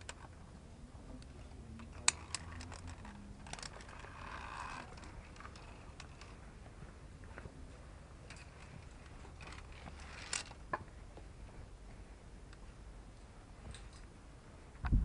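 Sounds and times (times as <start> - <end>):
climbing gear clicks: 0.0 - 0.4, 1.2 - 7.5, 8.2 - 11.3, 13.6 - 14.1
scraping rustle: 8.3 - 10.7.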